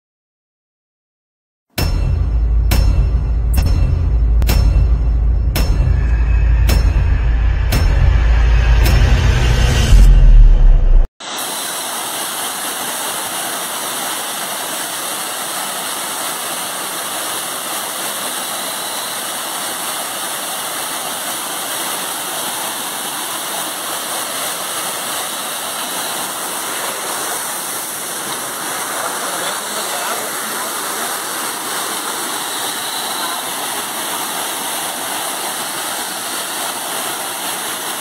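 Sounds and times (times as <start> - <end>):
loud low rumble: 1.8 - 11.1
waterfall rushing over rocks: 11.2 - 38.0.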